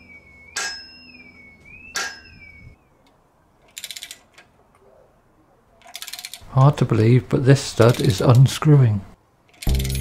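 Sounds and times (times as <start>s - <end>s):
ratchet handle clicking: 3.7s - 4.4s, 5.8s - 6.4s, 9.5s - 10.0s.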